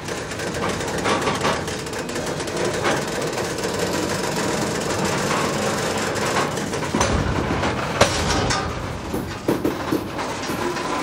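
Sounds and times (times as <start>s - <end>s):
diesel locomotive clattering: 0.0s - 11.0s
sharp knocks: 6.9s - 11.0s.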